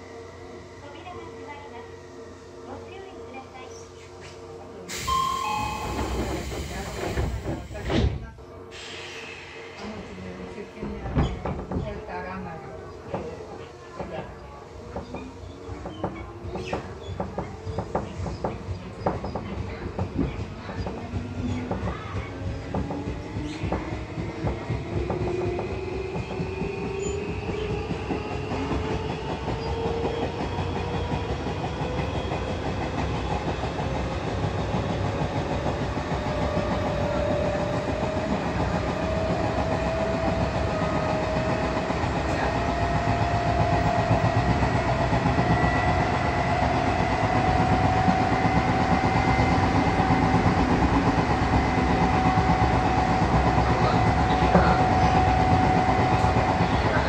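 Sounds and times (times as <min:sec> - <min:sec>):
wheel and rail rumble: 0:29.5 - 0:57.0.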